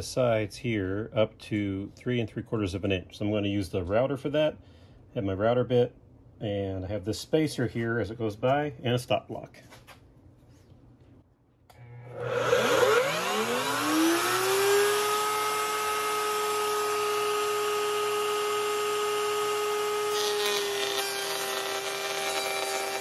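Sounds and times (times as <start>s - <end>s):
wood router motor whine: 11.7s - 23.0s
router bit cutting wood hiss: 12.1s - 23.0s.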